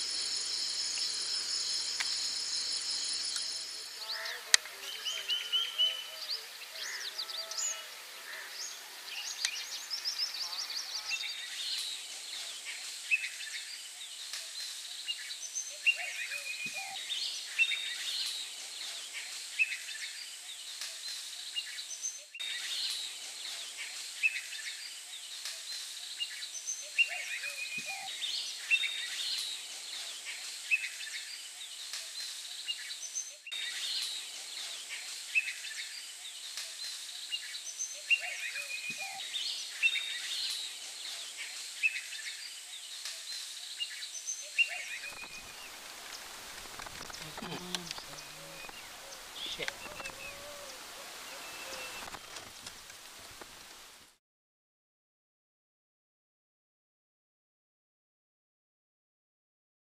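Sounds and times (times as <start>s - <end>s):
steady high hiss: 0.0s - 15.6s, 16.2s - 26.6s, 44.6s - 54.2s
birds chirping and calling: 0.0s - 52.6s.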